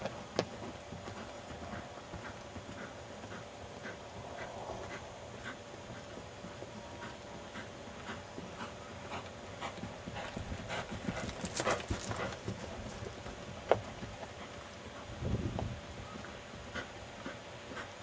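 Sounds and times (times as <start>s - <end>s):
horse hoofbeats on dry ground: 0.0s - 18.0s.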